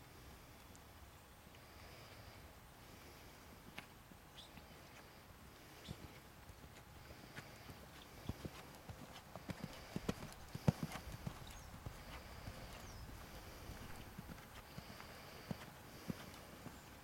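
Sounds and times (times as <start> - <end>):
horse hoofbeats on sand: 6.6 - 17.0.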